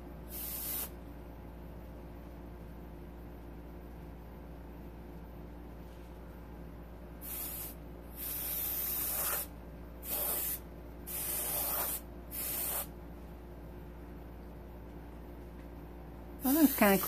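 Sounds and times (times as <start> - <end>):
airbrush air hisses: 0.3 - 0.9, 7.2 - 12.9.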